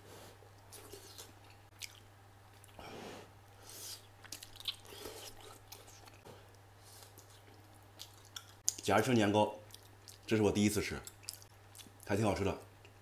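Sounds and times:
man chewing food: 0.4 - 8.8, 9.6 - 10.3, 11.0 - 12.1.

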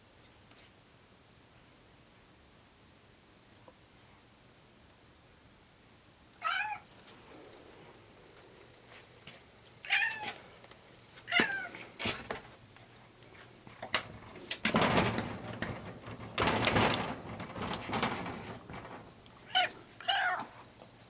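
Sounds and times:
cat meowing: 6.4 - 6.8, 9.8 - 10.4, 19.5 - 20.6.

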